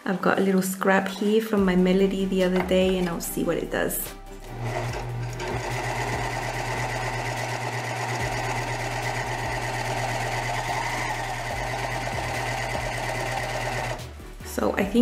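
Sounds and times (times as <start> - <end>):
serger sewing machine running: 4.4 - 14.0.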